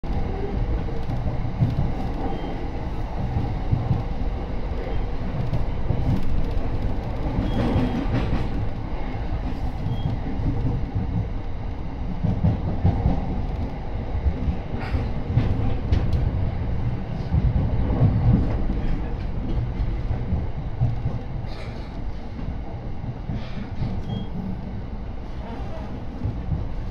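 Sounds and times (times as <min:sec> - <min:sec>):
train wheels rumbling on rail: 0:00.0 - 0:26.9.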